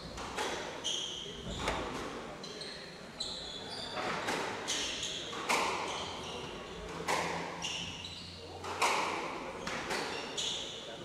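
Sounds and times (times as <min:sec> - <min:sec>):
squash ball hitting rackets and walls: 0:04.0 - 0:05.9, 0:06.9 - 0:07.7, 0:08.6 - 0:10.1.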